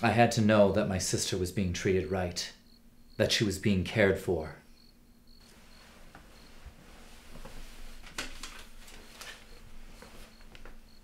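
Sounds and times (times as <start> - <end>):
soft rustling: 5.4 - 10.9.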